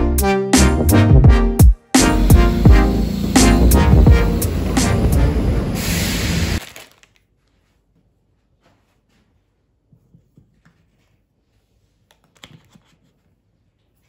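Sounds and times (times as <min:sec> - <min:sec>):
paper wrapping handled: 0:06.6 - 0:07.9.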